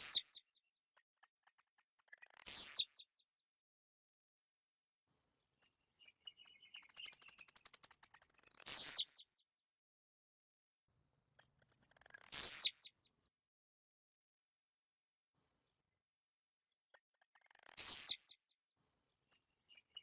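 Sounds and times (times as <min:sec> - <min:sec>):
bird singing rapid high ticks: 0:00.0 - 0:03.3, 0:05.6 - 0:09.4, 0:11.4 - 0:13.1, 0:16.7 - 0:18.6, 0:19.2 - 0:20.0.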